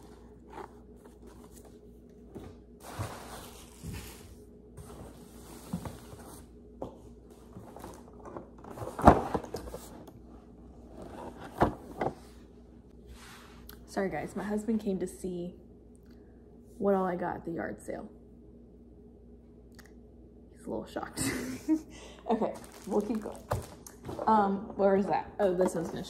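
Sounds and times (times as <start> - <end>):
objects rustling on floor: 0.0 - 10.2, 22.5 - 24.4.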